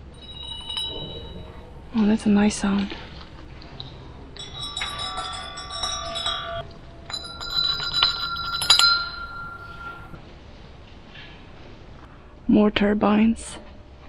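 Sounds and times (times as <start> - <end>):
metal blades ringing: 0.0 - 1.9, 4.4 - 10.2.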